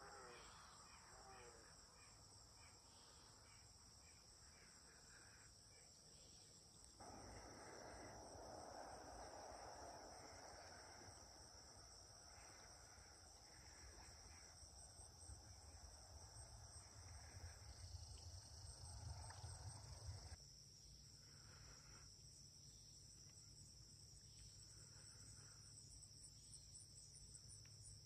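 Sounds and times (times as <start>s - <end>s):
faint crickets chirping: 0.0s - 28.0s
soft low rumble: 7.0s - 20.4s.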